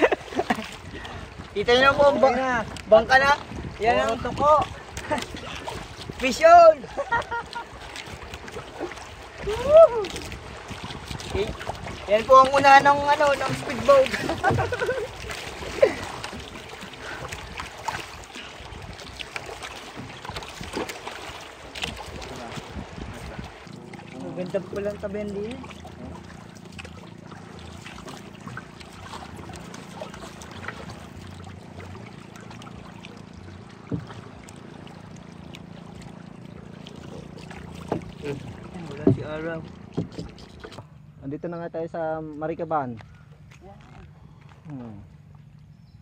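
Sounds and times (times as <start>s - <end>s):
water slapping against boat hull: 0.0s - 41.0s
wind on microphone: 0.8s - 6.4s, 8.0s - 19.2s, 19.9s - 24.7s.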